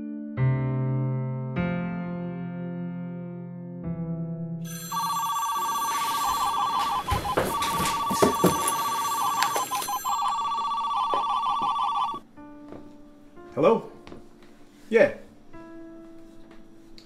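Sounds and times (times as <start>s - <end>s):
phone ringing electronic trill: 4.7s - 12.2s
soft rustles and clicks: 5.6s - 10.4s.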